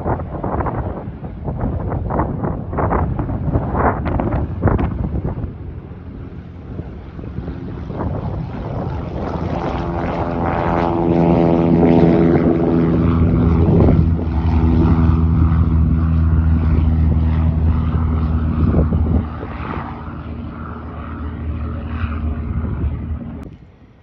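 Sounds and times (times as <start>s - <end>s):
propeller plane engine droning: 0.0s - 24.0s.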